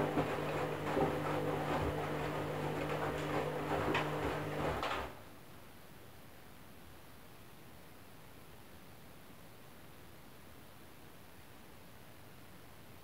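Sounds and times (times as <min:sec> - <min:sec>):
clothes swishing and knocking: 0:00.0 - 0:05.1
washing machine motor humming: 0:00.0 - 0:05.2.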